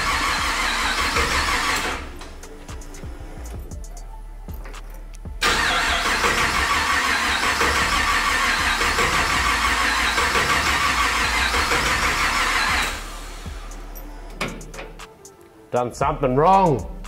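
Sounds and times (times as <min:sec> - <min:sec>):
engine starter motor cranking: 0:00.0 - 0:02.4, 0:05.4 - 0:15.0.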